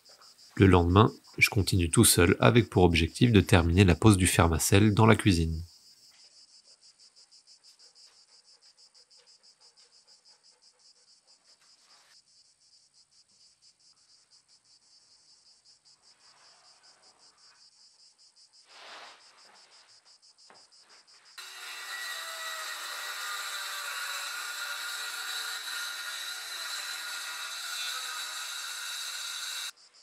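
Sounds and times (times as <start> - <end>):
faint insects chirping: 0.0 - 21.4, 29.7 - 30.0.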